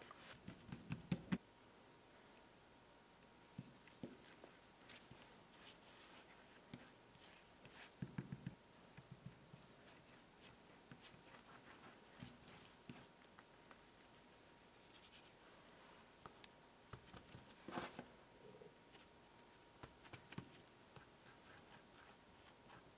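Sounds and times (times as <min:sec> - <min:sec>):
hands patting dough: 0:00.2 - 0:01.4, 0:03.5 - 0:13.9, 0:16.2 - 0:18.0.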